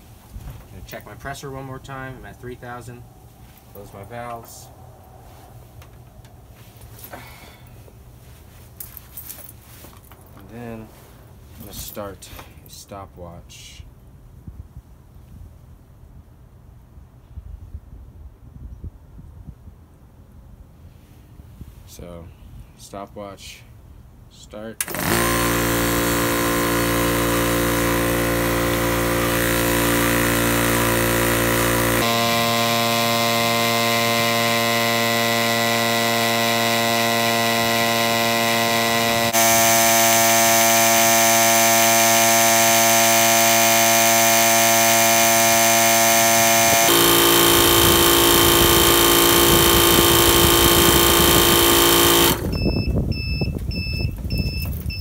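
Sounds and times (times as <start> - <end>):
air compressor humming: 24.8 - 54.8
compressor beeping in two pitches: 24.8 - 55.0.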